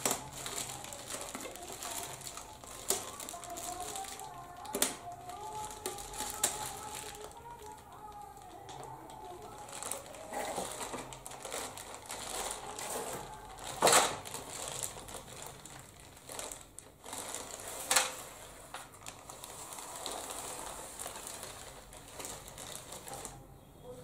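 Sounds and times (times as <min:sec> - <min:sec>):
plastic film cracks: 0:00.0 - 0:23.4
plastic film crinkling: 0:00.0 - 0:23.4.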